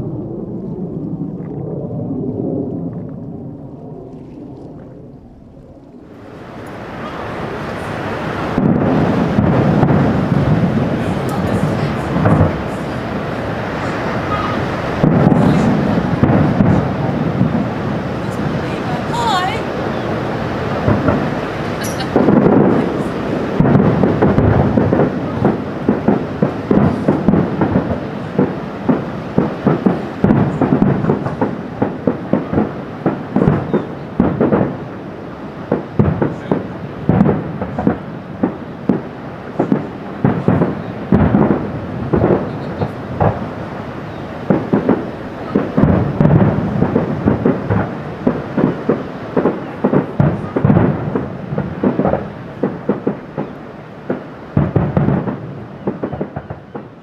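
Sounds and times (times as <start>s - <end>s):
low rumble of echoing booms: 0.0s - 57.0s.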